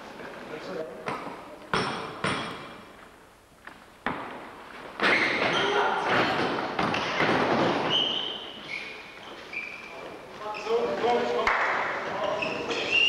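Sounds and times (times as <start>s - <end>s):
shoes squeaking: 4.6s - 13.0s.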